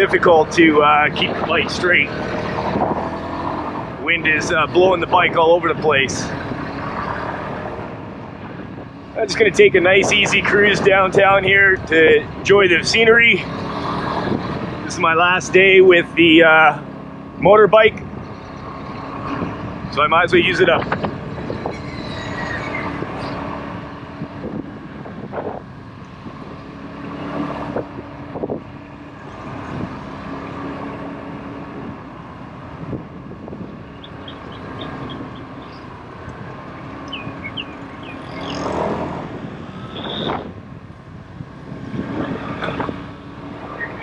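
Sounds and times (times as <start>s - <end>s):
road noise: 0.0s - 44.0s
wind gusting over microphone: 0.0s - 44.0s.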